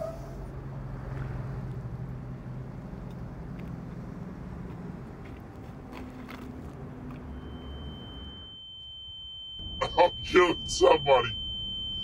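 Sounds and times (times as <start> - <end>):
low vehicle rumble: 0.0 - 8.5
high-pitched tone: 7.3 - 12.0.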